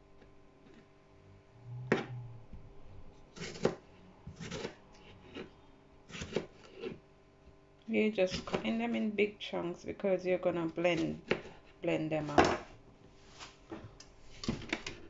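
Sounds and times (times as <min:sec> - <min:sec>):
knife slicing on cutting board: 0:03.4 - 0:05.5.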